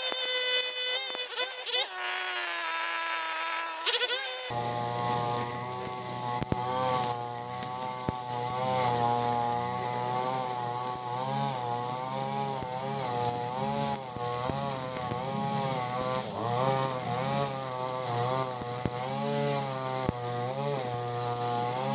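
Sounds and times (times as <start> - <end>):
trimmer line cutting grass: 0.0 - 21.9
brush cutter engine running: 4.5 - 21.9.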